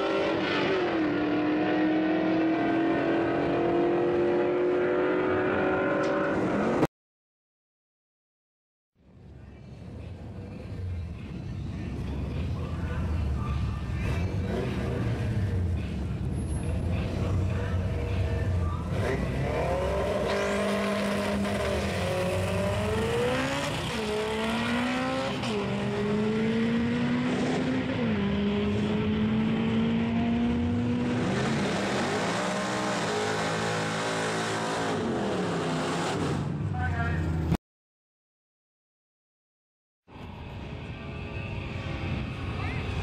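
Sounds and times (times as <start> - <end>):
engines revving through upshifts: 0.0 - 6.9, 18.8 - 36.5
engines idling: 9.3 - 19.6.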